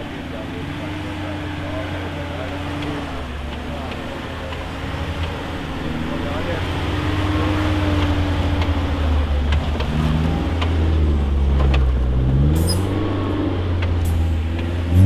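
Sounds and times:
off-road vehicle engine at low revs: 0:00.0 - 0:15.0
sharp clicks and knocks: 0:07.9 - 0:10.9, 0:11.5 - 0:12.8, 0:13.8 - 0:14.8.

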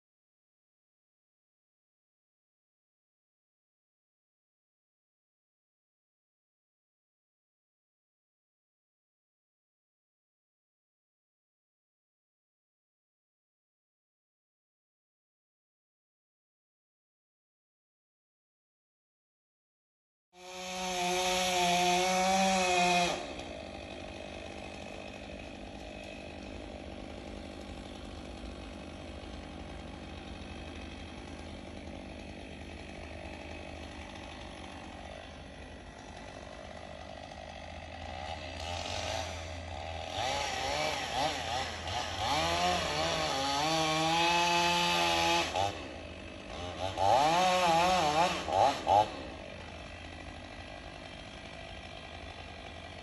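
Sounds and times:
chainsaw running: 0:20.4 - 0:53.0.

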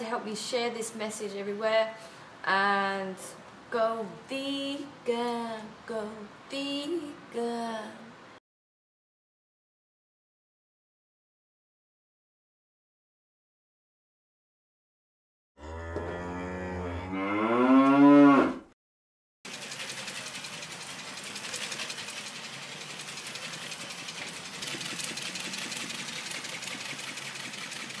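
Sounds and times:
cow mooing: 0:15.6 - 0:18.7.

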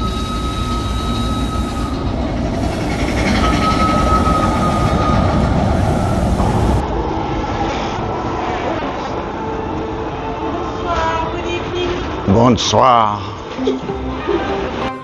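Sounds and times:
high steady squeal: 0:00.0 - 0:07.0
roller coaster running on track: 0:00.0 - 0:11.0.

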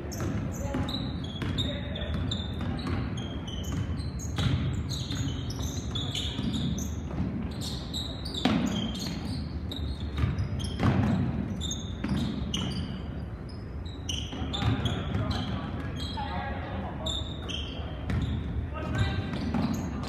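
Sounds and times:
sneakers squeaking on court: 0:00.0 - 0:20.0
basketball bouncing on wood floor: 0:00.1 - 0:07.5, 0:10.0 - 0:12.8, 0:14.3 - 0:15.6.

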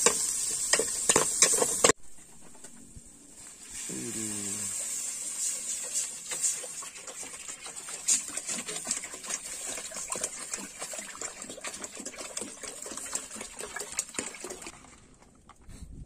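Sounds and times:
water pouring into pot of liquid: 0:03.6 - 0:15.1.

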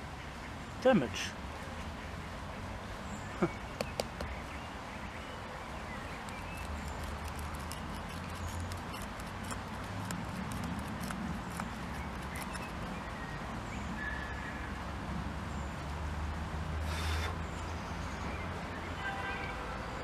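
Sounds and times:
small irregular clicks and crackles: 0:06.2 - 0:12.9.

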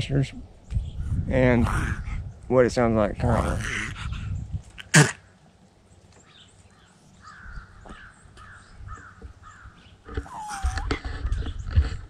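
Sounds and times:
crow cawing: 0:07.2 - 0:10.9.

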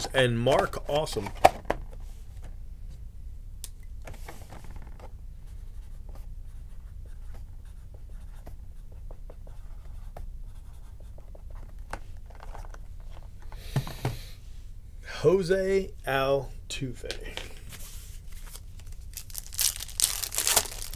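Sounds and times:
marker scratching on cardboard: 0:05.5 - 0:11.5
cards and packaging rustling: 0:17.4 - 0:20.9.

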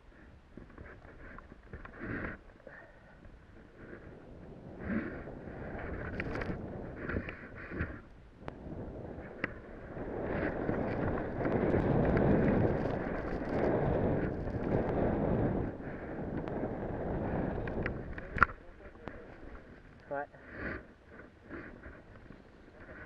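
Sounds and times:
wind buffeting microphone: 0:03.2 - 0:20.1.

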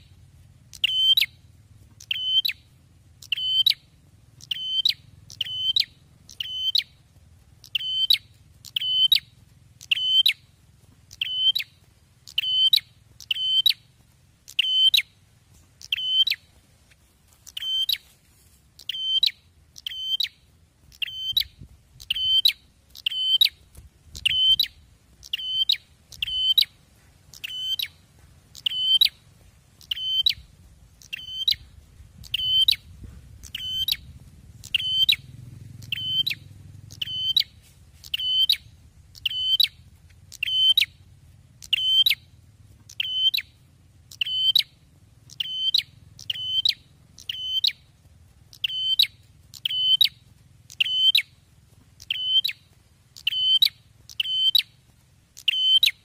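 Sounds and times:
bird calling sharp high notes: 0:00.7 - 0:01.4, 0:02.0 - 0:02.6, 0:03.2 - 0:03.8, 0:04.4 - 0:07.0, 0:07.6 - 0:10.4, 0:11.1 - 0:13.8, 0:14.5 - 0:15.1, 0:15.8 - 0:16.5, 0:17.4 - 0:18.0, 0:18.8 - 0:23.6, 0:24.2 - 0:28.0, 0:28.6 - 0:29.2, 0:29.8 - 0:30.4, 0:31.0 - 0:31.6, 0:33.4 - 0:34.0, 0:34.6 - 0:35.2, 0:35.8 - 0:41.0, 0:41.6 - 0:42.2, 0:42.9 - 0:43.5, 0:44.1 - 0:44.7, 0:45.3 - 0:47.8, 0:48.5 - 0:51.3, 0:52.0 - 0:52.6, 0:53.2 - 0:54.7, 0:55.4 - 0:56.0.

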